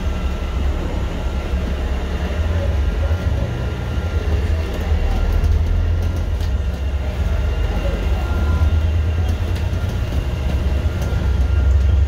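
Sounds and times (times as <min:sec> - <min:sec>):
bus engine rumble: 0:00.0 - 0:12.0
faint high whine: 0:06.5 - 0:12.0.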